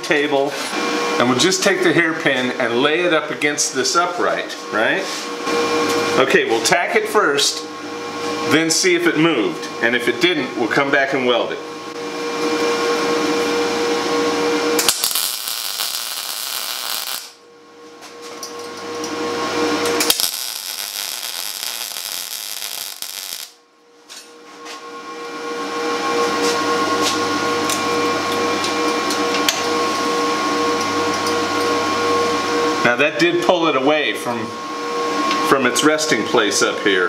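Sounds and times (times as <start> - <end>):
steady hum: 5.4 - 31.2
welding arc crackling: 14.8 - 17.4, 19.8 - 23.6.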